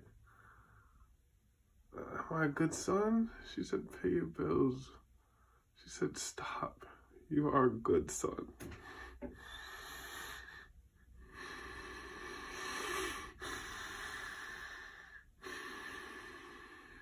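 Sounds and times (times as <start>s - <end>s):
man breathing heavily: 8.6s - 17.0s.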